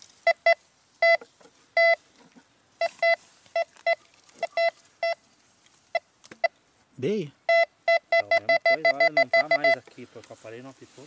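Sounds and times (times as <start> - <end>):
metal detector beeping: 0.2 - 1.2, 1.8 - 2.0, 2.8 - 5.2, 7.4 - 9.8.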